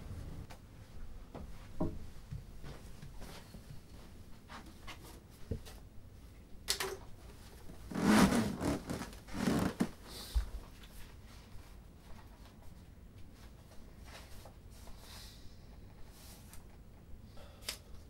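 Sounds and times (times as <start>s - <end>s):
bedding rustling: 7.7s - 10.0s.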